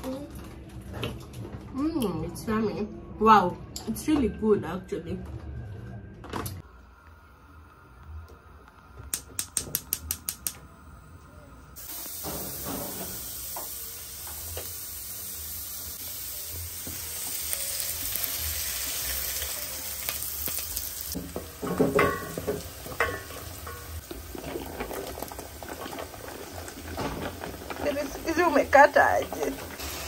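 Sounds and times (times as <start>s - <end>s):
onions sizzling in hot oil: 11.8s - 30.0s
knocks and clatters against pot: 21.2s - 27.8s.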